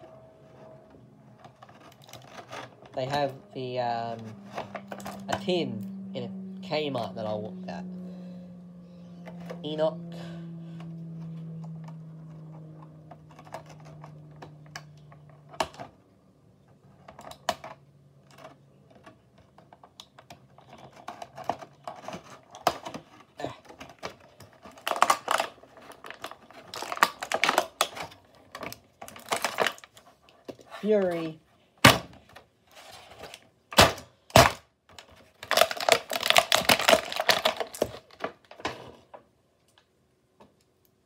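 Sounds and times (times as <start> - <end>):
low steady hum: 0.0 - 32.5
plastic packaging clicks and crackles: 1.4 - 3.4, 10.8 - 16.0, 16.9 - 31.2, 33.2 - 39.0.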